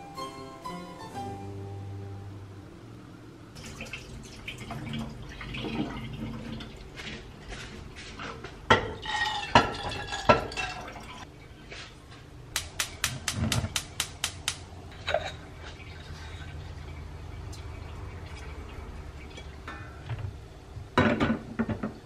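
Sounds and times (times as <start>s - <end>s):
metal bowl clinking on pot: 8.7s - 11.2s.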